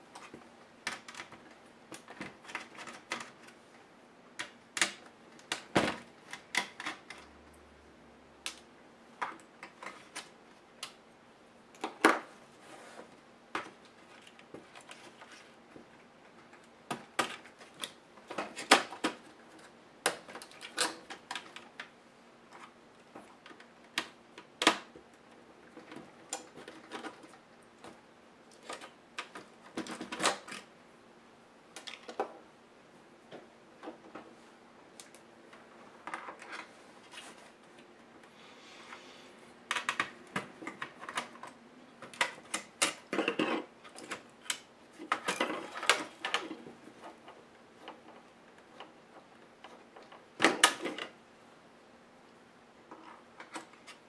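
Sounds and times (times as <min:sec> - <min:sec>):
laptop parts clicking and tapping: 0:00.2 - 0:03.6, 0:04.4 - 0:07.3, 0:39.7 - 0:48.9.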